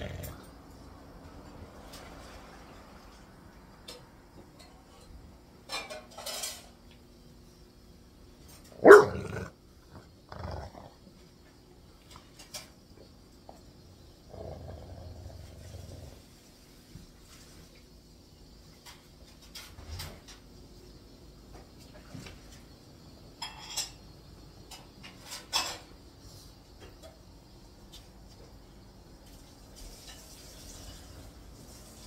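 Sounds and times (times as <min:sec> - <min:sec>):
dog barking: 0:08.8 - 0:09.5.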